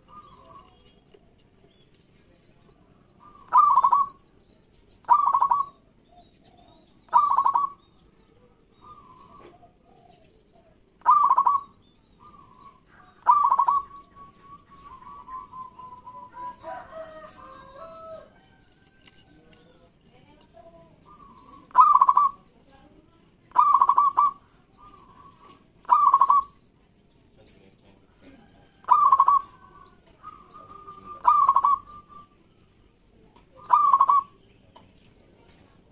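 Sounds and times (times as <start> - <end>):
dove cooing: 0.0 - 0.8, 3.2 - 4.2, 5.0 - 7.8, 8.6 - 18.4, 21.0 - 22.5, 23.5 - 26.6, 28.1 - 32.4, 33.5 - 34.4
soft trilling coo: 3.2 - 4.2, 8.8 - 18.3, 21.0 - 22.4, 23.5 - 26.5, 28.4 - 32.3, 33.6 - 34.4.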